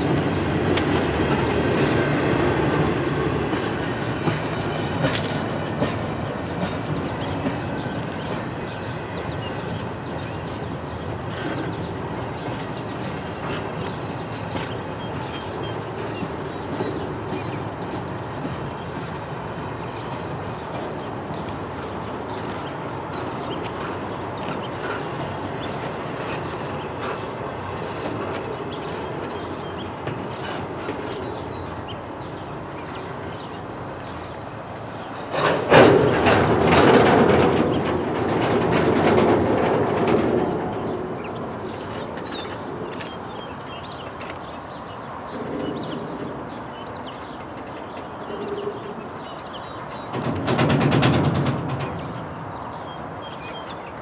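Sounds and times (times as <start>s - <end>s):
train cars clanking: 0.0s - 54.0s
train wheels clattering on rails: 0.0s - 54.0s.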